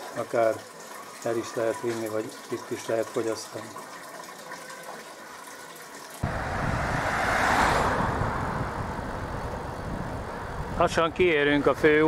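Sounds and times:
faint running water: 0:00.0 - 0:06.2
wind rushing: 0:06.2 - 0:10.8
road noise: 0:06.2 - 0:12.0.

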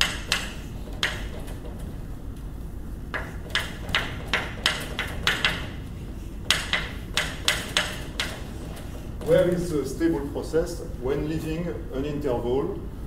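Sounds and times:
chalk tapping and scraping on blackboard: 0:00.0 - 0:01.5, 0:03.1 - 0:05.8, 0:06.4 - 0:09.3.

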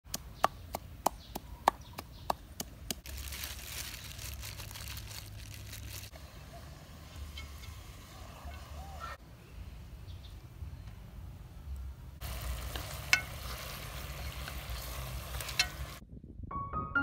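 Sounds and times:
gloved hands rustling plastic: 0:02.9 - 0:06.2.

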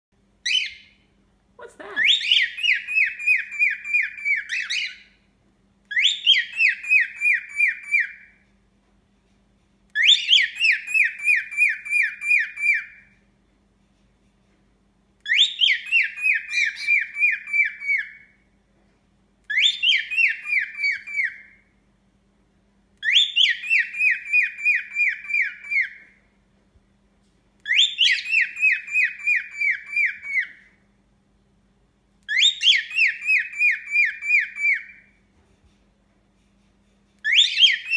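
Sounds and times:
cockatiel whistling call: 0:00.4 - 0:01.0, 0:02.0 - 0:05.2, 0:05.9 - 0:08.4, 0:10.0 - 0:13.1, 0:15.2 - 0:18.4, 0:19.5 - 0:21.7, 0:23.0 - 0:26.1, 0:27.6 - 0:30.8, 0:32.3 - 0:35.1, 0:37.2 - 0:37.9.

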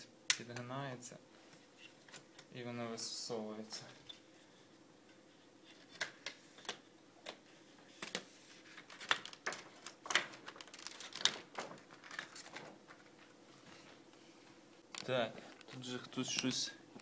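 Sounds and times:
plastic sheet crackling and clicking: 0:08.0 - 0:13.4.

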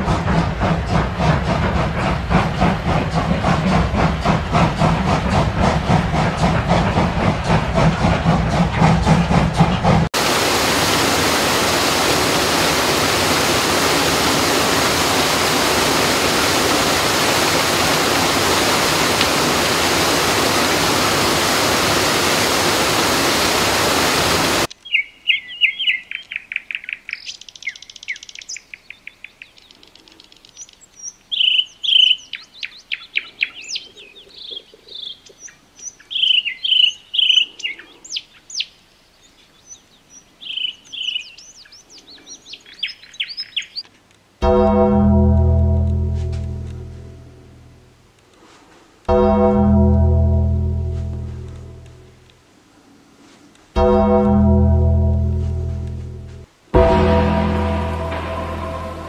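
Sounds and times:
steam locomotive chuffing: 0:00.0 - 0:24.7, 0:56.8 - 0:59.0
birds chirping: 0:09.0 - 0:43.9
waterfall rushing: 0:10.2 - 0:24.7.

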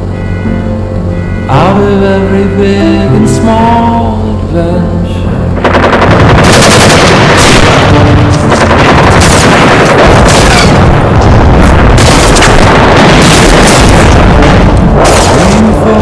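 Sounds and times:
explosion booms and blasts: 0:05.6 - 0:16.0.

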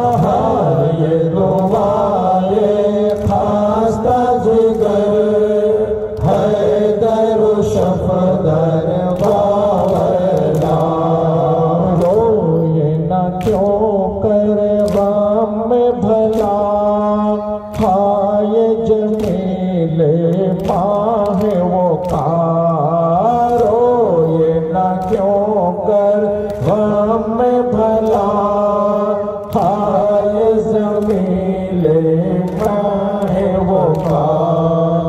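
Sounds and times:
men chanting a lament: 0:00.0 - 0:35.0
chest-beating slaps: 0:09.0 - 0:11.2, 0:32.4 - 0:34.6.

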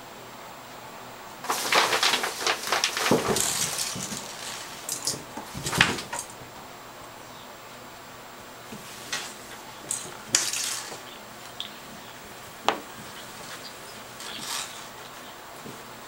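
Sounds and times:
plastic curtain crinkling: 0:01.4 - 0:06.4, 0:08.7 - 0:16.0
paws scrabbling on bathtub: 0:08.7 - 0:16.0.

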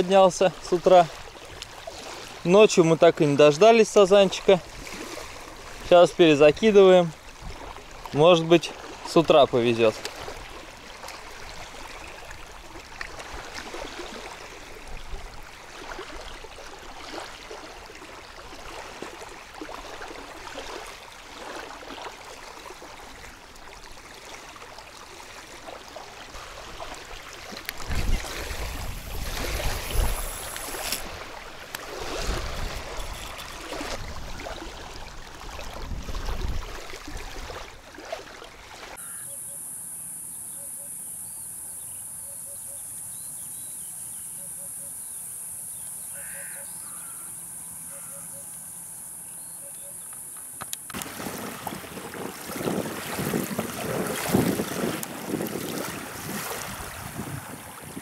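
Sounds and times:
waves lapping on sandy shore: 0:00.0 - 0:39.0, 0:50.1 - 0:58.0
insects chirring: 0:27.2 - 0:32.0, 0:39.0 - 0:51.8
wind gusting on microphone: 0:27.8 - 0:31.3, 0:31.9 - 0:34.7, 0:35.6 - 0:37.5, 0:51.0 - 0:58.0.

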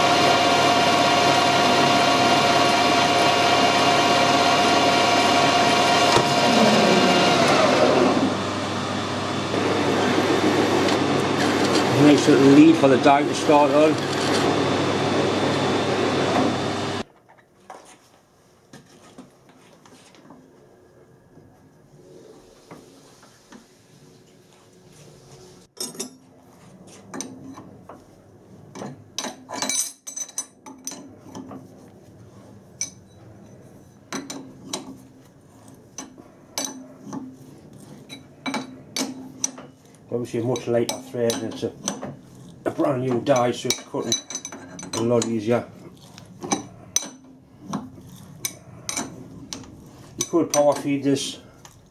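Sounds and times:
metal lathe running: 0:00.0 - 0:17.0.

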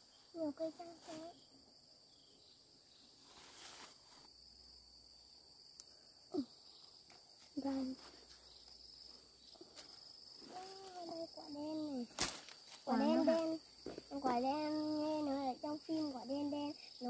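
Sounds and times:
insects chirring: 0:00.0 - 0:17.0
soft rustle: 0:00.1 - 0:01.4, 0:03.1 - 0:04.3.

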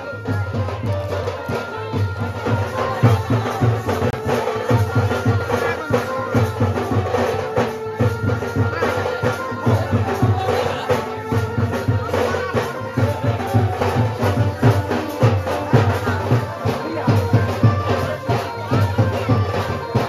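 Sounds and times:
music with drum beat: 0:00.0 - 0:20.0.

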